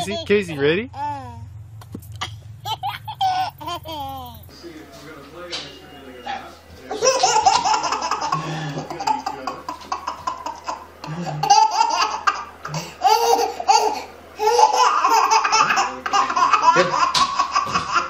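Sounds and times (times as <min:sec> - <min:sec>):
baby laughing: 0:01.0 - 0:01.4, 0:02.2 - 0:04.5, 0:06.9 - 0:18.0.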